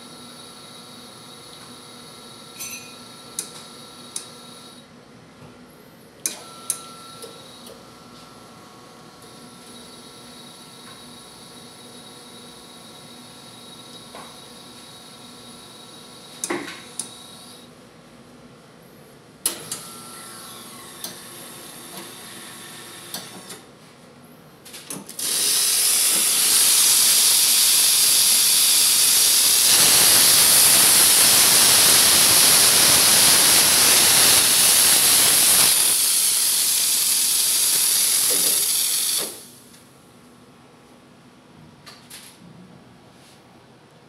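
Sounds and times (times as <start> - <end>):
steam hissing: 25.2 - 39.6.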